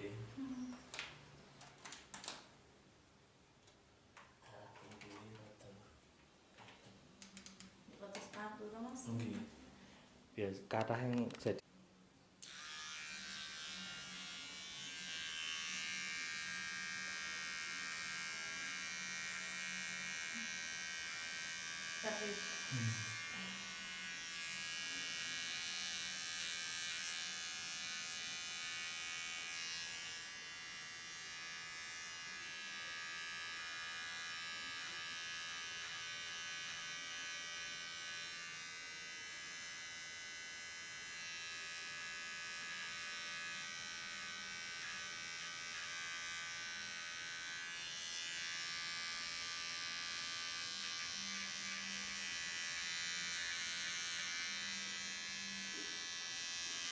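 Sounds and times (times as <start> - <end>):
electric hair clippers buzzing: 12.4 - 56.9.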